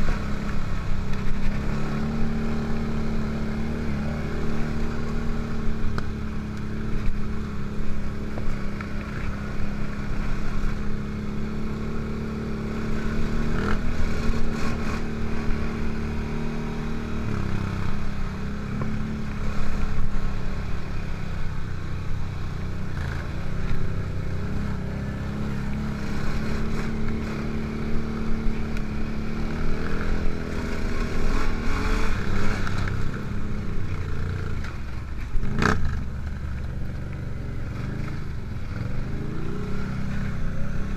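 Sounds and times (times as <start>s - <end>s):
atv engine running: 0.0s - 40.9s.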